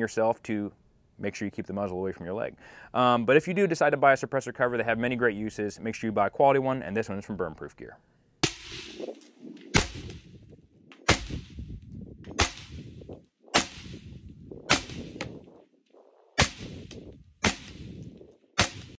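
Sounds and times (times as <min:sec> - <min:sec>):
suppressed rifle shots: 0:09.7 - 0:10.3, 0:10.9 - 0:11.6, 0:12.3 - 0:13.0, 0:13.6 - 0:15.4, 0:16.4 - 0:18.0, 0:18.6 - 0:19.0.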